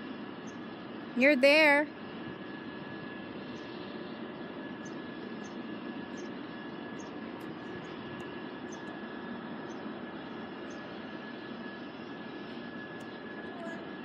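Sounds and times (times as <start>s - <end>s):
mechanical drone with high whine: 0.0s - 14.0s.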